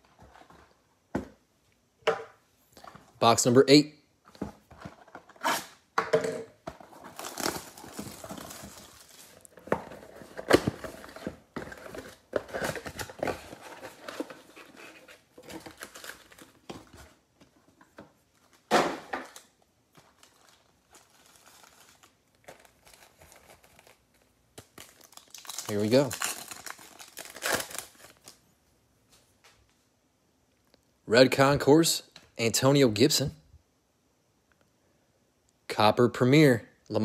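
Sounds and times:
plastic wrap crinkling and tearing: 6.9 - 11.2, 19.3 - 28.4
foil packs handled: 6.9 - 16.7, 19.4 - 28.4.

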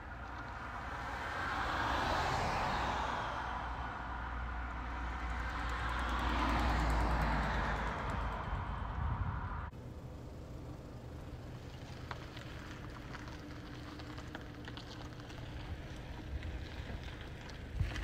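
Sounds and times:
car engine low rumble: 0.0 - 18.0
car tyre and engine noise: 0.0 - 18.0.

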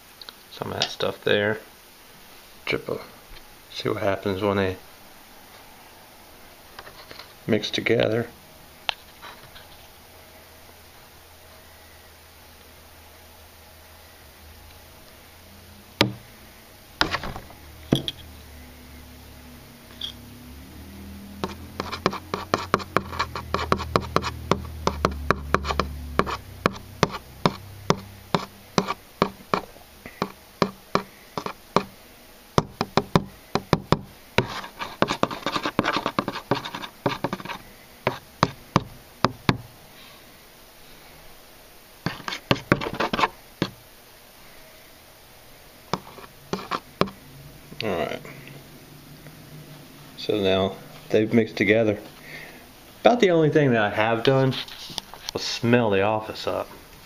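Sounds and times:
screwdriver tapping and scraping: 17.0 - 18.3, 21.4 - 31.9, 32.6 - 39.6, 42.1 - 43.8, 45.9 - 47.2.

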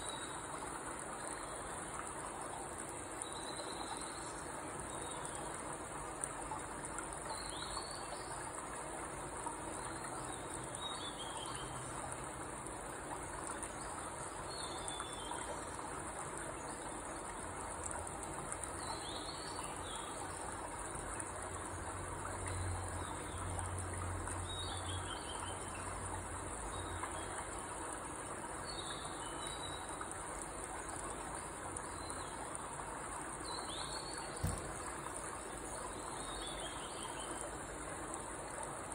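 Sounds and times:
single knock: 34.4 - 34.8.

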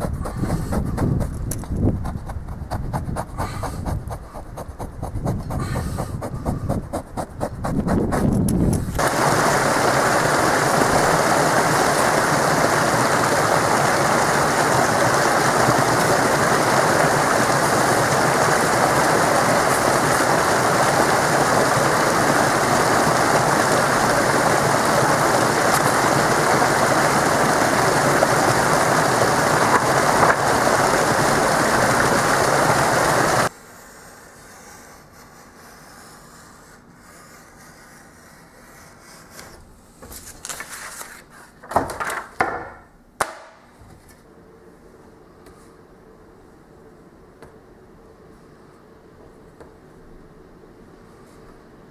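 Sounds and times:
rushing water hiss: 8.7 - 33.5.

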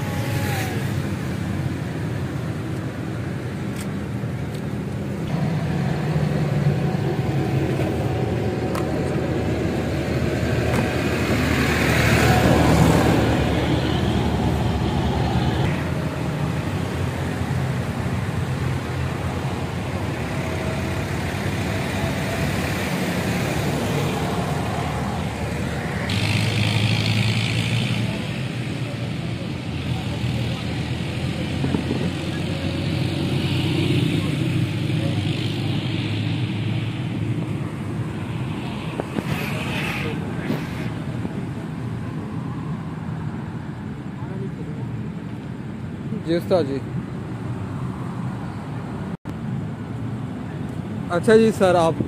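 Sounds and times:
road traffic rumble: 0.0 - 52.0
vehicle passing loudly: 5.2 - 43.5.

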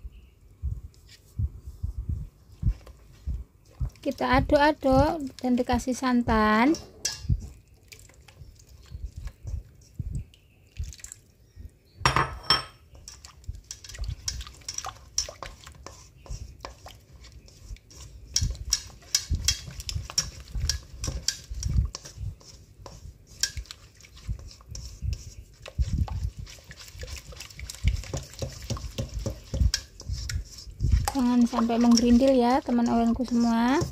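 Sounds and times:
spatula scraping batter in metal bowl: 2.6 - 10.0, 12.9 - 33.9.

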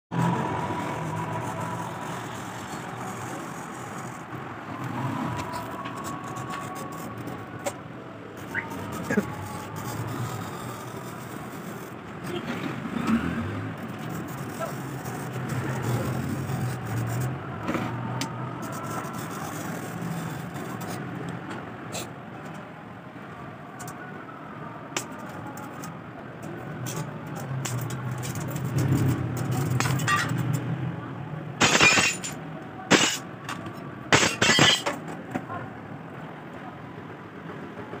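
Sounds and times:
glass cutter scratching: 0.2 - 4.3, 8.4 - 12.0, 13.8 - 17.4, 31.6 - 33.2, 34.1 - 35.0.

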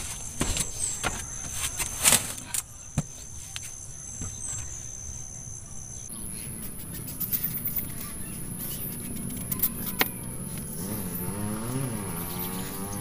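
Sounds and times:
knife scraping fruit skin: 6.6 - 12.9.

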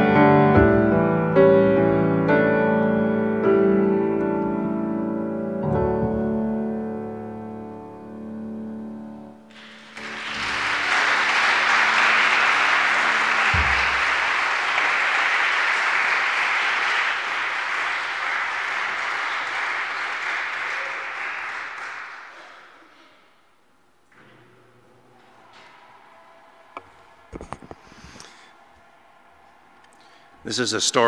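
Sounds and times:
piano chord: 0.0 - 15.0
audience applauding: 9.5 - 23.0, 25.0 - 31.0.

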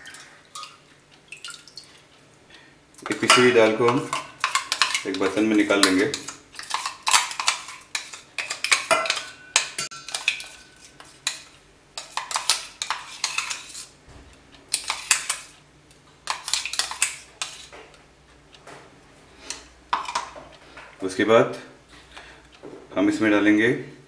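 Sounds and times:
spoon scraping metal jar: 3.1 - 13.9, 14.7 - 15.5, 16.2 - 17.7.

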